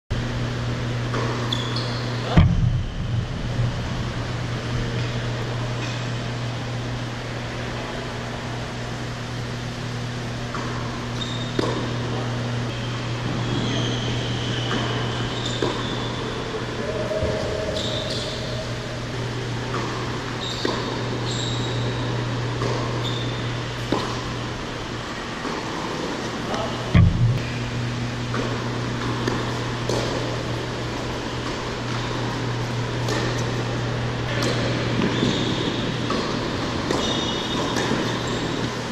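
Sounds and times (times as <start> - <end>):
ventilation fans humming: 0.1 - 38.9
shoes squeaking on court: 1.1 - 2.4, 10.4 - 12.0, 12.7 - 16.4, 17.2 - 18.8, 19.7 - 24.4, 25.4 - 38.8
tennis balls bouncing: 10.4 - 12.0, 23.8 - 24.4, 25.4 - 38.8
tennis balls struck by rackets: 10.5 - 12.0, 28.3 - 30.5, 33.0 - 33.7, 34.3 - 38.3.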